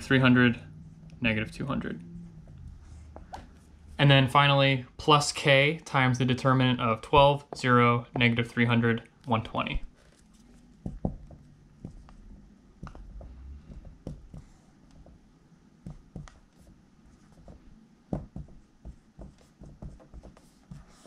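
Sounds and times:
marker writing on a whiteboard: 10.0 - 12.2, 12.8 - 15.2, 15.8 - 21.0.

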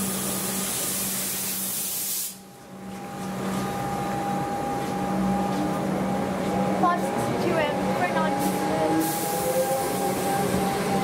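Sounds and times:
loud air hiss: 0.0 - 2.5, 8.4 - 10.6
train rolling noise: 3.0 - 11.0.

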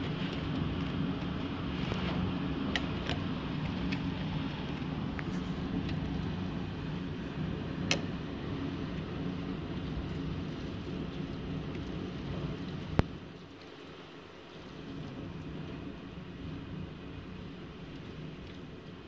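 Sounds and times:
strong wind and heavy rain: 0.0 - 19.0.

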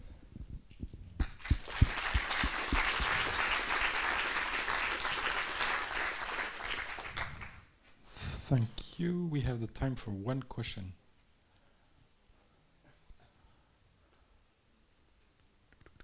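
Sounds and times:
audience applauding: 1.2 - 7.7.

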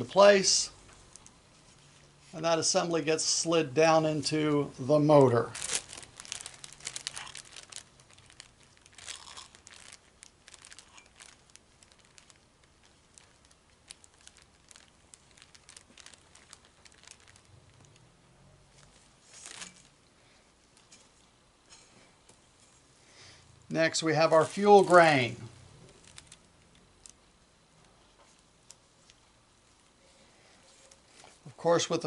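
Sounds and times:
plastic sheet crinkling: 0.0 - 18.1, 18.7 - 21.3, 23.8 - 27.3.

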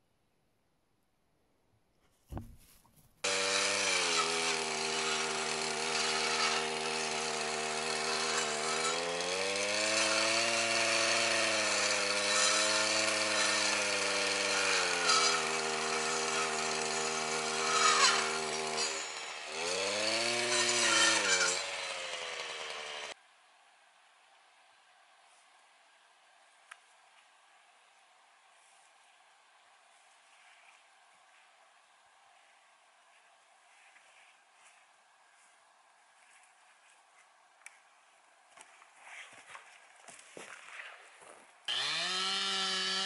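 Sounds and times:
chainsaw running at high revs: 3.2 - 23.2, 41.7 - 43.0.

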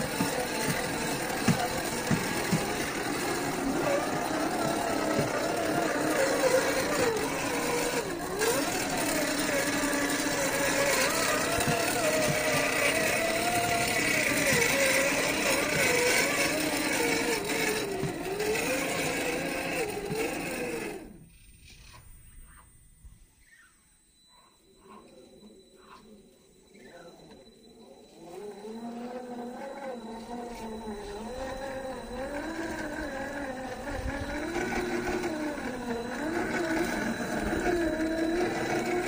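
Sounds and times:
electric motor whining: 0.0 - 23.5, 24.7 - 39.0.

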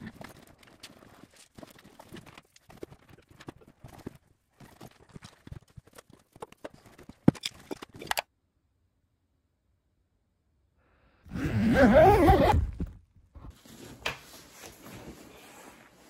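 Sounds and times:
fabric rustling: 11.9 - 16.0.

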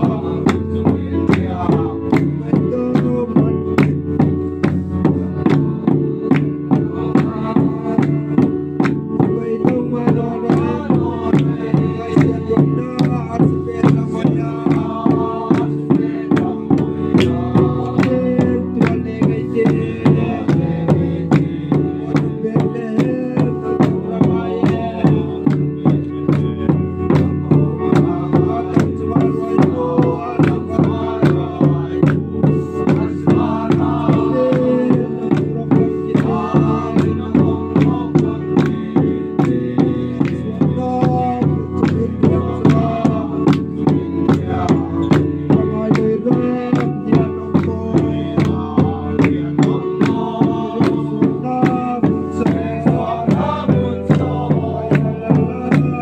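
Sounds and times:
group singing a hymn: 0.0 - 56.0
hand clapping: 0.4 - 7.4, 8.0 - 10.6, 11.3 - 19.8, 25.4 - 29.8, 30.4 - 33.1, 36.2 - 51.8, 53.3 - 56.0.

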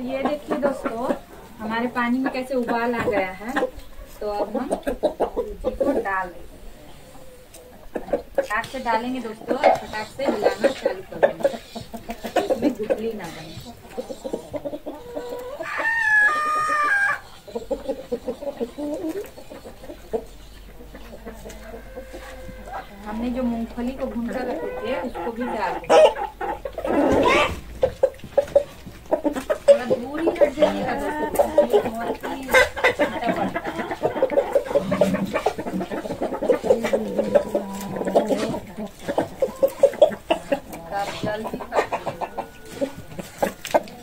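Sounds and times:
hens clucking: 0.0 - 44.0
rooster crowing: 15.6 - 17.3, 21.7 - 23.2.

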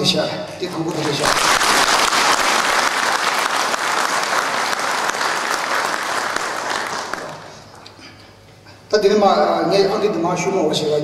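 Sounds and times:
audience applauding: 0.6 - 7.9.

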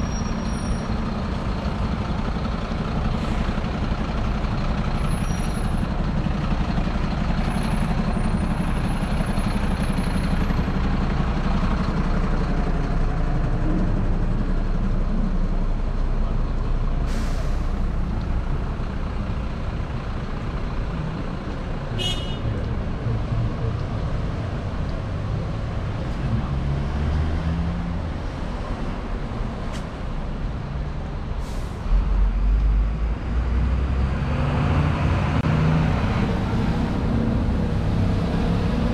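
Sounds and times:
heavy vehicle low rumble: 0.0 - 38.9
vehicle engines passing: 17.7 - 38.9.

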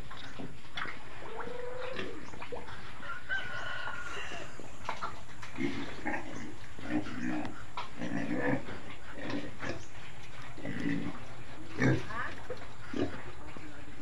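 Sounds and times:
pig eating from trough: 0.0 - 14.0
rooster crowing: 3.0 - 4.8.

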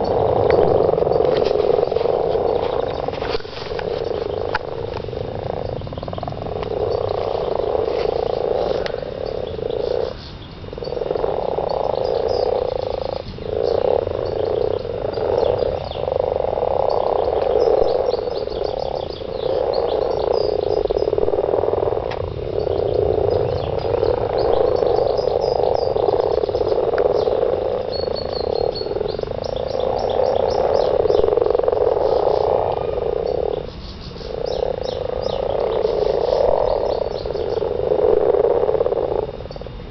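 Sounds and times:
frogs croaking chorus: 0.0 - 39.9.

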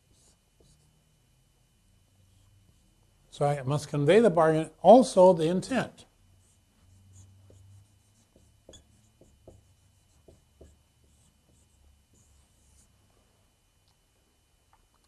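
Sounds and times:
marker squeaking on whiteboard: 6.4 - 12.9.

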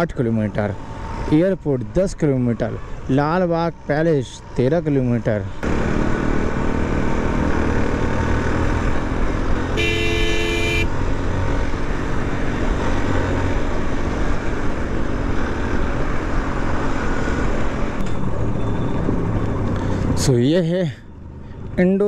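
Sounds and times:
motorcycle engine and road noise: 0.0 - 22.0
vehicle horn honking: 9.8 - 10.9.

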